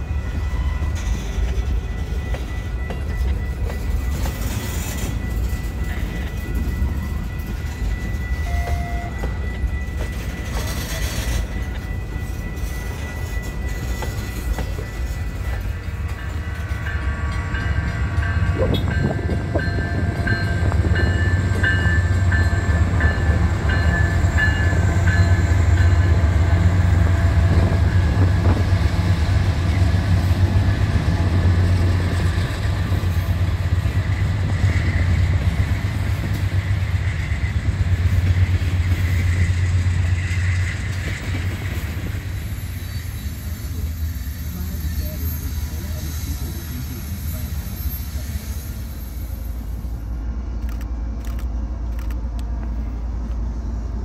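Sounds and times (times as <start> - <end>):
pulsing high ringing: 0.0 - 32.7
diesel locomotive engine rumble: 0.0 - 54.0.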